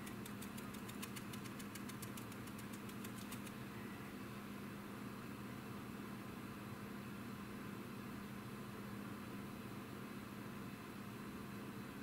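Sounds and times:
brush stippling on plastic: 0.0 - 3.6.

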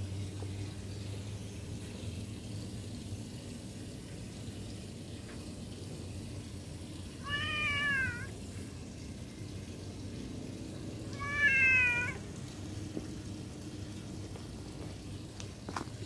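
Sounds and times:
cat meowing: 7.2 - 8.3, 11.1 - 12.2.

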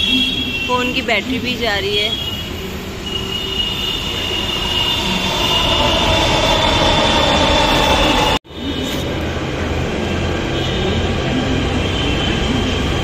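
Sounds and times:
train running noise: 0.0 - 13.0
train wheels squealing: 2.0 - 9.1.

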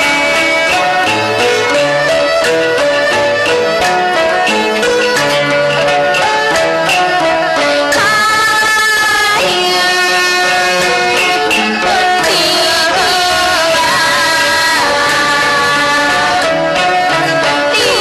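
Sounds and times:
percussion taps: 0.0 - 9.6.

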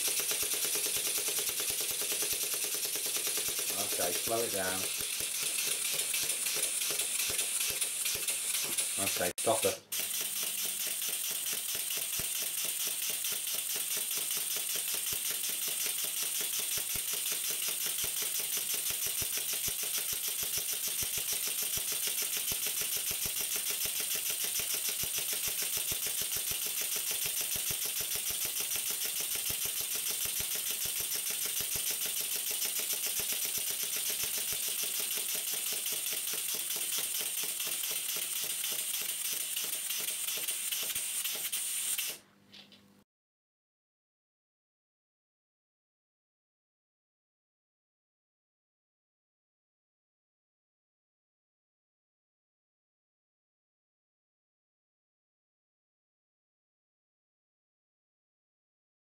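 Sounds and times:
model steam engine ticking: 0.0 - 42.0.

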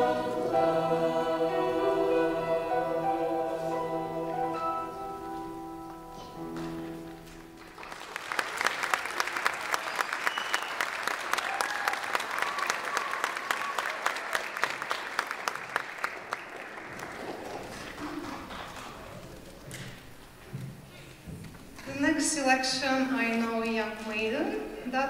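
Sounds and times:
choir holding a chord: 0.0 - 6.4
audience applauding: 6.6 - 19.8.

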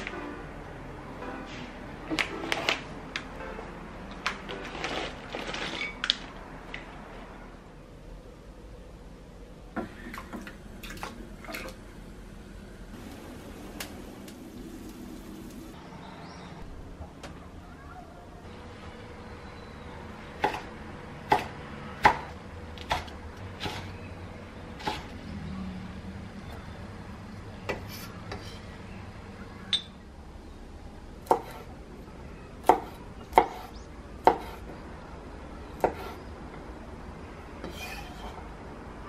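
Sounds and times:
knife chopping on wooden board: 21.3 - 23.8, 31.2 - 31.6, 32.6 - 34.6.

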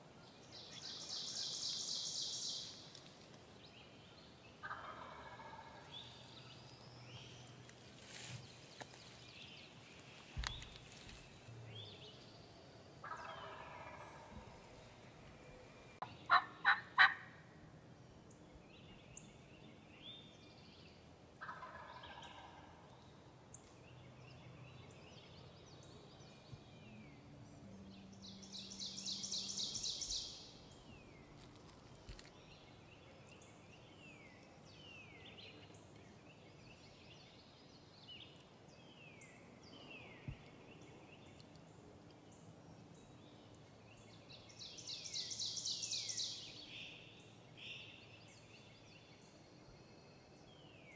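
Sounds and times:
small birds chirping: 0.4 - 16.8, 18.2 - 50.9
turkey gobbling: 4.6 - 5.8, 13.0 - 14.4, 16.3 - 17.3, 21.4 - 22.7.

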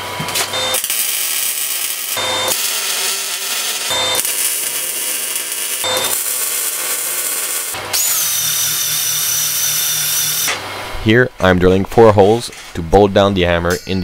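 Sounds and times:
arc welding crackle: 0.3 - 10.6
drill spinning wire brush: 0.6 - 10.6.

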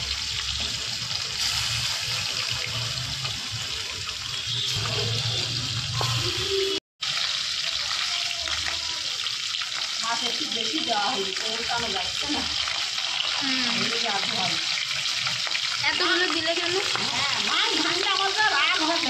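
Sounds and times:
fish sizzling in hot oil: 0.0 - 19.0.

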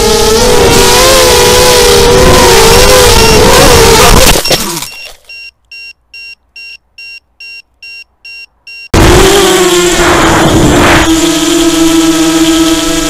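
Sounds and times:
drone motors whining: 0.0 - 5.1, 8.9 - 13.0
short high electronic beeps: 4.3 - 8.9.

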